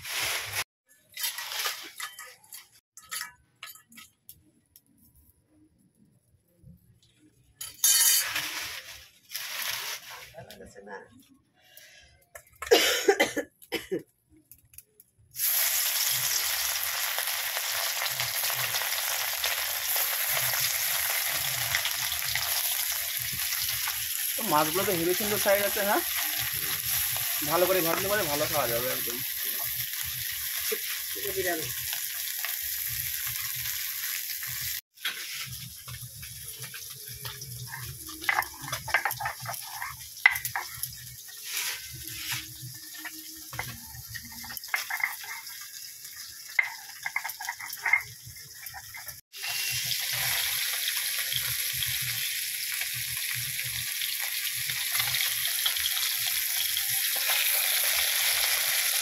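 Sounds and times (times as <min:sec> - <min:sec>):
fish sizzling in hot oil: 0:00.0 - 0:03.3, 0:07.9 - 0:10.2, 0:14.6 - 0:59.0
spatula turning fish: 0:35.1 - 0:45.8.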